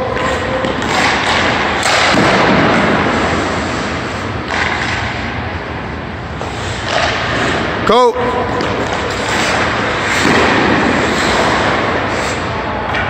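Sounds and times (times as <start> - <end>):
skate blades scraping ice: 8.6 - 12.7.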